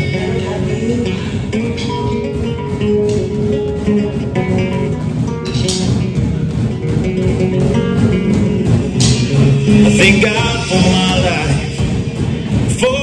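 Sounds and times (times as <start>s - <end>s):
upbeat guitar music with beat: 0.0s - 13.0s.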